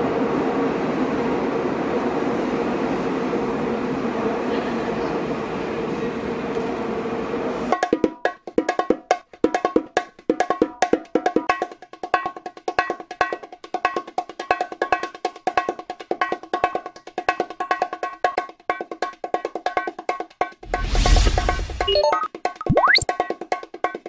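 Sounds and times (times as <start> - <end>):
subway train noise: 0.0 - 7.8.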